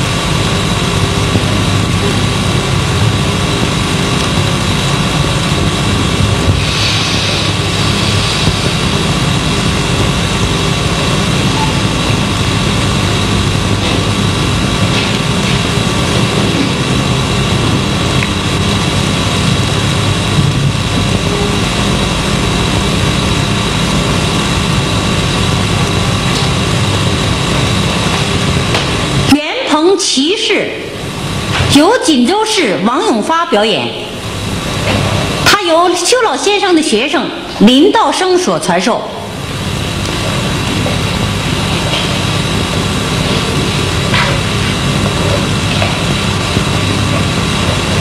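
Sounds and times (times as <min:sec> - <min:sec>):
constant whining tones: 0:00.0 - 0:29.4
soundtrack hum and hiss: 0:00.0 - 0:48.0.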